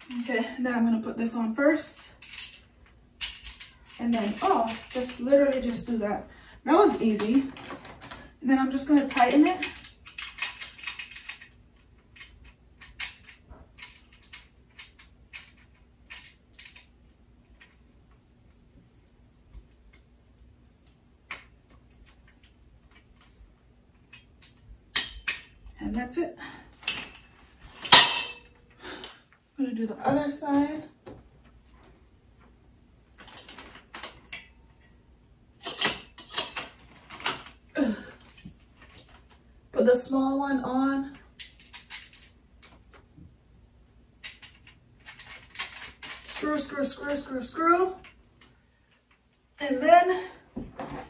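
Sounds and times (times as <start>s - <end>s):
metal tubes clicking and knocking: 2.2s - 5.9s, 8.7s - 16.9s, 20.8s - 25.7s, 44.2s - 47.2s.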